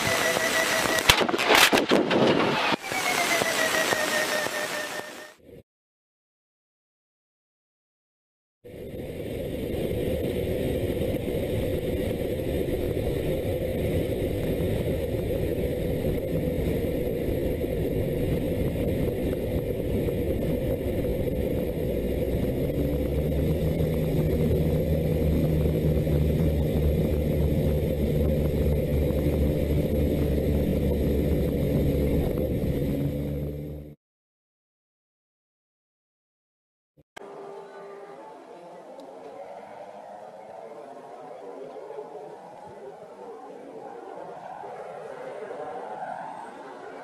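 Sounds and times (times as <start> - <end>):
hum with held tones: 0.0 - 1.2, 37.2 - 45.1
aircraft cockpit engine drone: 0.0 - 5.6, 8.7 - 34.0, 37.2 - 47.0.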